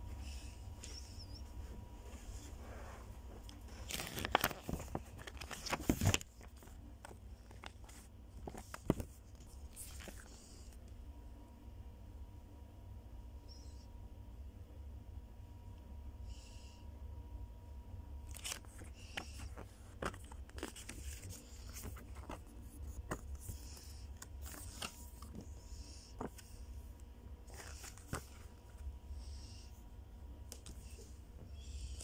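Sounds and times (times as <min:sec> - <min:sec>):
paper leaflets rustling: 0:03.4 - 0:10.5, 0:18.3 - 0:26.6, 0:27.4 - 0:28.8.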